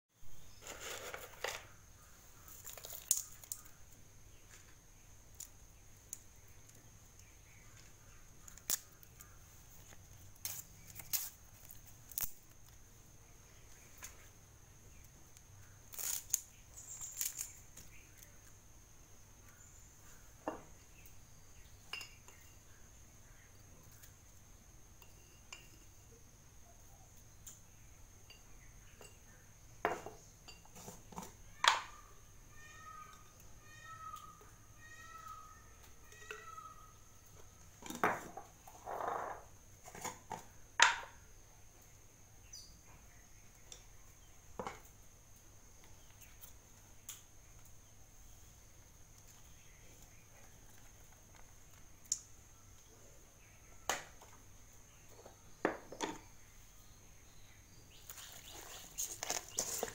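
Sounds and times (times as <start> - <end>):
faint high-pitched whine: 0.2 - 59.9.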